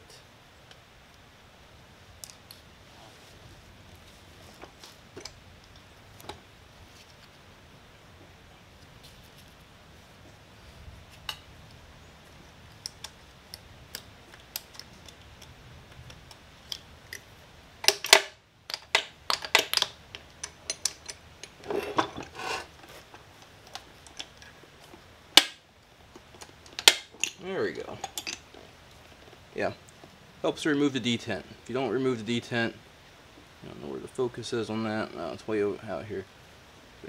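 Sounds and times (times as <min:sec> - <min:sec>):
metal scraping: 0:21.6 - 0:23.2.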